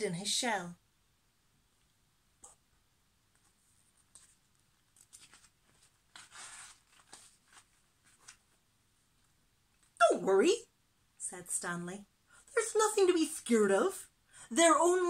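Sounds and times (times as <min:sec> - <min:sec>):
paper page turning: 0:03.3 - 0:08.6.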